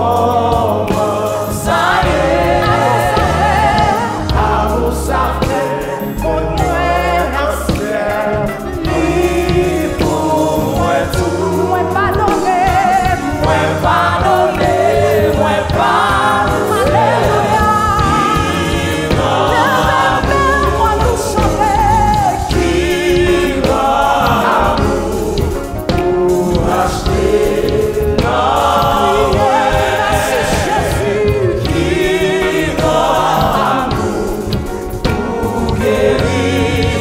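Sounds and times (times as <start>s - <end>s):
choir singing gospel: 0.0s - 37.0s
keyboard: 0.0s - 37.0s
woman singing: 11.6s - 15.0s, 16.5s - 18.6s, 19.4s - 22.6s.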